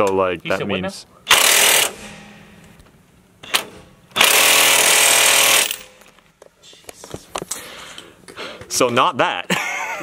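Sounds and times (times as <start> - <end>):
impact wrench hammering: 1.3 - 6.2.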